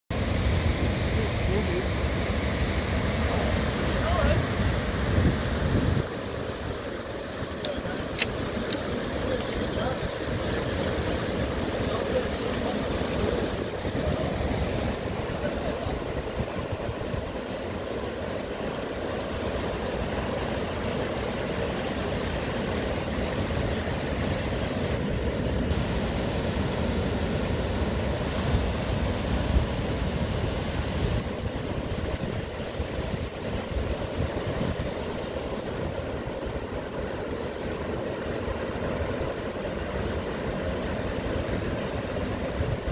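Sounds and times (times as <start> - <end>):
heavy surf breaking: 0.1 - 42.9.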